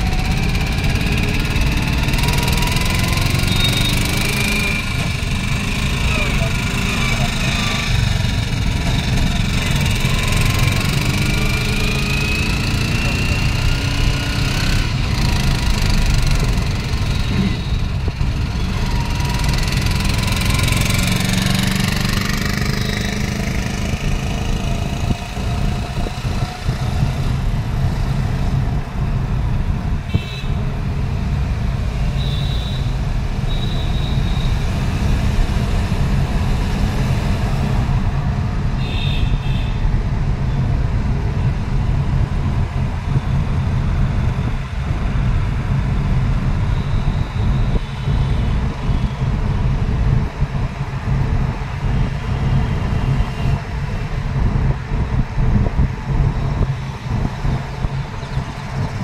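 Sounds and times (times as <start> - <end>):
road noise: 0.0 - 59.0
vehicle engine rumble: 0.0 - 59.0
vehicle horn toots: 38.8 - 39.8.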